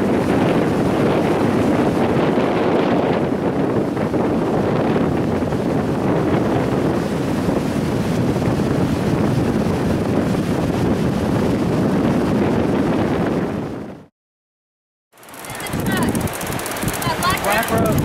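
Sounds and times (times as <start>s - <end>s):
wind buffeting microphone: 0.0s - 14.1s, 15.3s - 18.0s
breaking surf: 15.2s - 18.0s.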